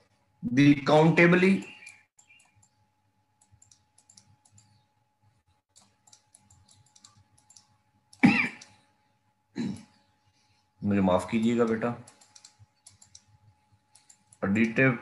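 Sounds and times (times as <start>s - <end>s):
man speaking: 0.4s - 1.7s, 10.8s - 12.0s, 14.4s - 15.0s.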